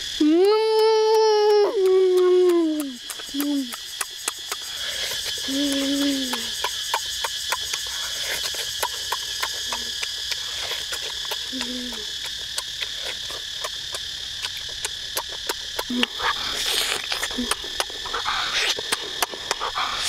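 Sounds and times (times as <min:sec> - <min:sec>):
forest insects droning: 0:00.0 - 0:20.0
sharp clicks: 0:00.1 - 0:04.7
boy humming while eating: 0:00.1 - 0:07.9, 0:11.4 - 0:12.4, 0:15.8 - 0:20.0.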